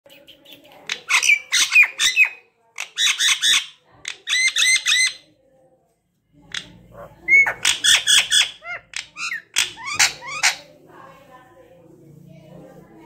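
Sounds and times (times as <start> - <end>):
parrot squawking: 0.9 - 5.2, 6.5 - 10.7.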